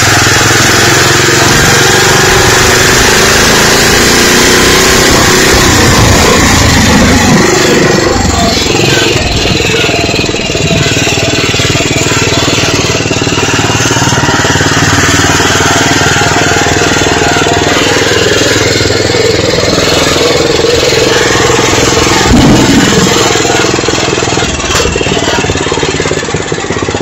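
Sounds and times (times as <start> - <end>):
road noise: 0.0 - 27.0
vehicle engine running: 0.0 - 27.0
wind noise: 5.1 - 11.2.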